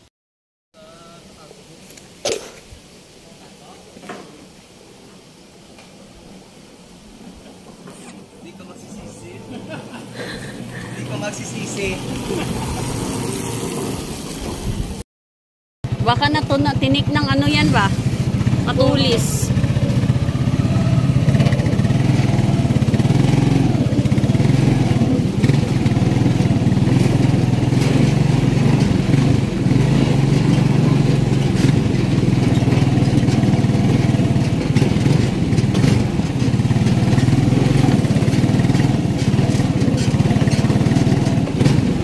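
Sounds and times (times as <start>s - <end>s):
small motorcycle engine running: 8.7s - 15.0s, 15.8s - 42.0s.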